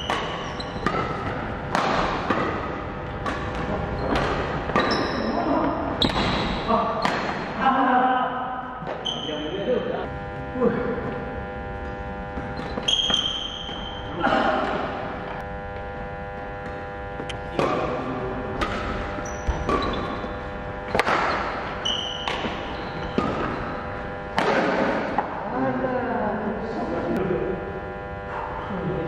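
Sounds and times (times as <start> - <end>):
racket striking shuttlecock: 0.0 - 7.7, 11.8 - 15.4, 16.2 - 25.4
steady electrical hum: 0.0 - 29.0
short high squeaks: 12.5 - 14.2, 19.2 - 20.4, 21.2 - 23.2.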